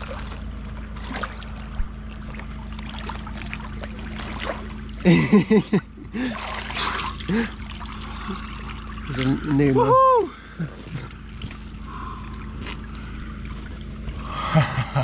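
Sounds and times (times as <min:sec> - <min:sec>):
icy water sloshing and trickling: 0:00.0 - 0:15.0
steady low hum: 0:00.0 - 0:15.0.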